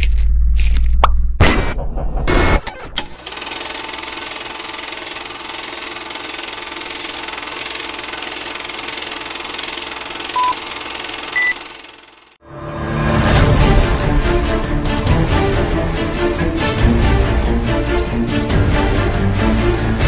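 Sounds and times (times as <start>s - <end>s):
machine engine running: 1.7s - 12.4s
short beeps: 10.4s - 10.6s, 11.4s - 11.6s.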